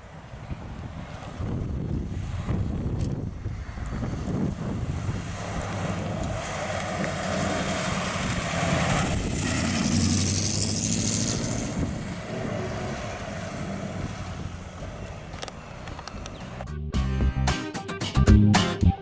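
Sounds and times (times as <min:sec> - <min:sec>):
truck engine driving past: 0:03.4 - 0:17.0.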